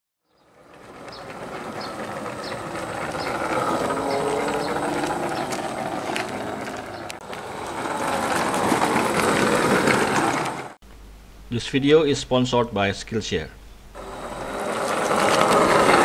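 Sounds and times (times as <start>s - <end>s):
toy car motor whirring rattle: 1.0s - 10.6s, 14.0s - 16.0s.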